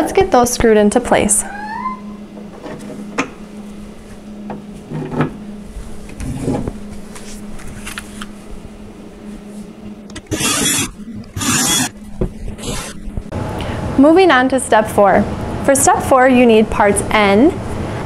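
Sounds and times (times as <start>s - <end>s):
cordless drill driving screw: 10.1s - 11.9s, 12.6s - 13.0s.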